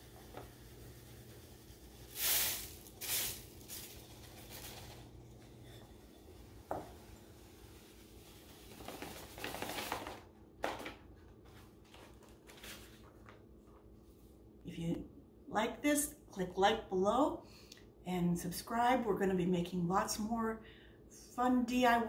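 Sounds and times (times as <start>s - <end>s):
salt pouring in hissing rushes: 0.0s - 10.0s
paper funnel rustling: 0.0s - 13.8s.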